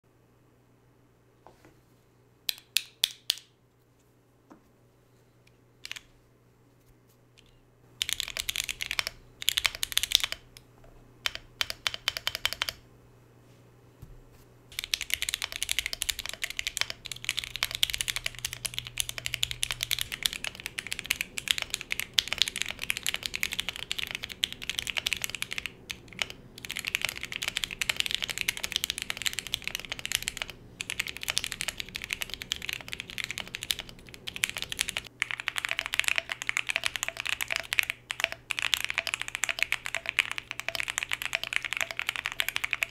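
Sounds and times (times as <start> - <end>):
mechanical keyboard typing: 8.0 - 10.5, 11.2 - 12.8, 14.7 - 42.9.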